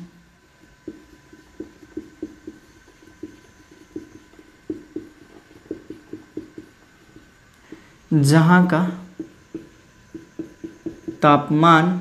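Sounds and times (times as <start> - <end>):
marker pen writing on board: 0.6 - 7.9, 9.1 - 11.3.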